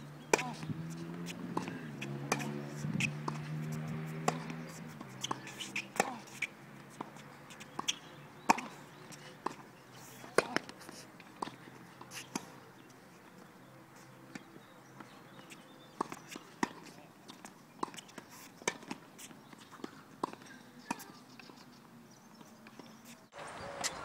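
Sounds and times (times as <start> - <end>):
tennis ball struck by rackets: 0.2 - 8.8, 10.3 - 10.8, 15.4 - 19.0
tennis ball bouncing: 0.2 - 13.4, 14.3 - 21.5.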